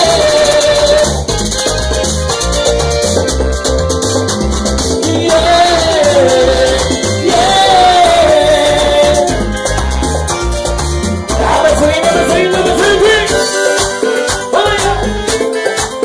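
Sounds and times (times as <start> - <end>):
person singing: 0.0 - 1.3, 5.0 - 9.8, 11.3 - 16.0
pulsing bass line: 0.0 - 15.4.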